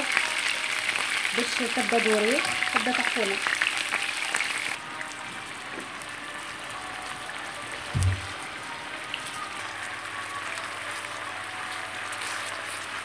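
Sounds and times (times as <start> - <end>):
meat sizzling in oil: 0.0 - 13.0
low thump: 7.9 - 8.3.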